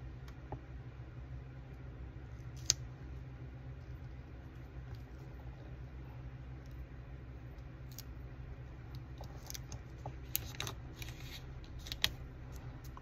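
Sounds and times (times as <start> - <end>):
low steady hum: 0.0 - 13.0
paper sticker rustling: 9.3 - 13.0.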